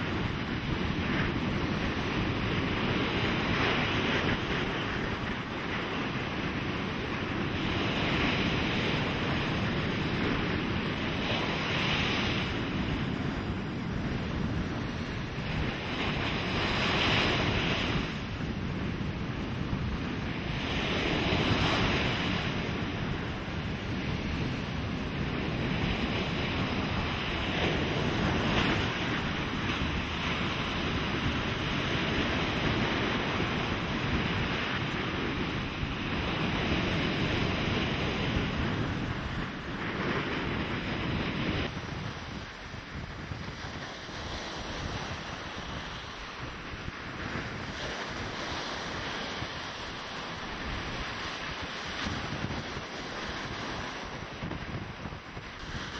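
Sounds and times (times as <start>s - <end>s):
surf breaking on beach: 0.0s - 55.9s.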